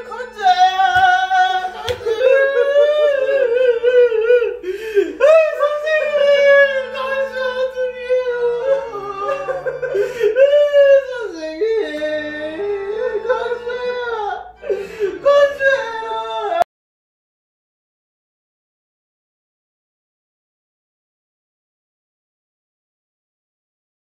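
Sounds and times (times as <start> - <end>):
person wailing: 0.1 - 16.7.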